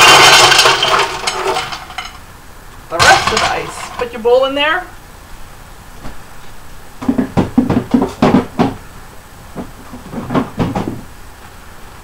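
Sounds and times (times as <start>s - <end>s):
kitchenware knocks and clunks: 2.9s - 4.2s, 7.0s - 8.8s, 9.6s - 11.1s.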